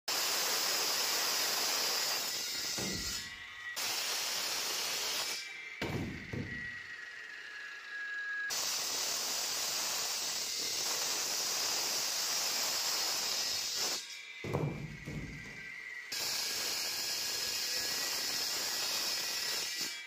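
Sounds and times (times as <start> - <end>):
saw grinding through concrete: 0.1 - 20.0.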